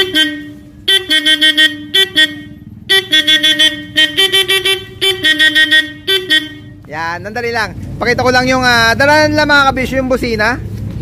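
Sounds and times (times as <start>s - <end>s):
car horn short beeps: 0.0s - 6.8s.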